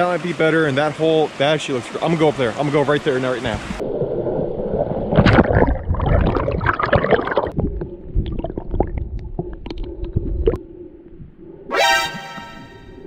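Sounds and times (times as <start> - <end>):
underwater steady hum: 3.5 - 13.0.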